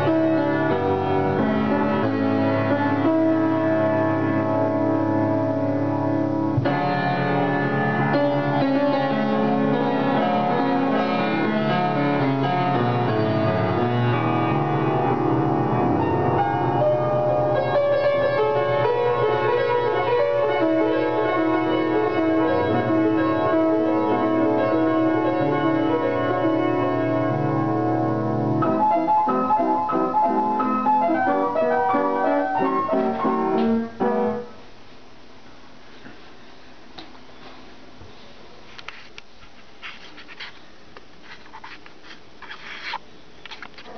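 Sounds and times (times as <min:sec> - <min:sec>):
piano playing: 0:00.0 - 0:34.7.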